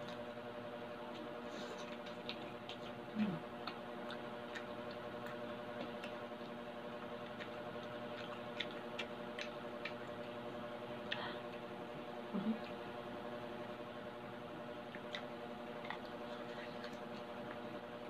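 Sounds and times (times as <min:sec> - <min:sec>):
low hum: 0:00.0 - 0:18.0
crunchy food being chewed: 0:01.0 - 0:12.0, 0:14.6 - 0:18.0.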